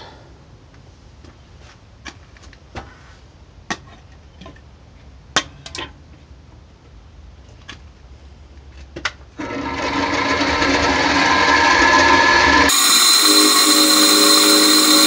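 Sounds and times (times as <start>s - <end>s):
milling machine motor whine: 9.4s - 15.0s.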